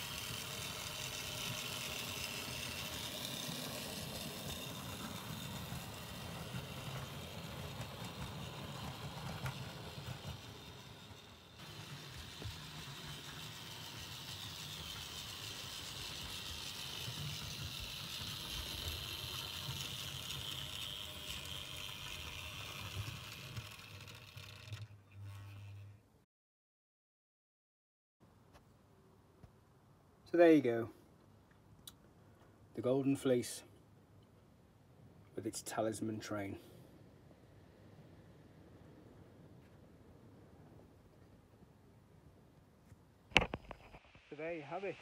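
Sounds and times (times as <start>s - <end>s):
electric motor whirr: 0.0s - 26.0s
wheels rattling over rails: 0.0s - 26.0s.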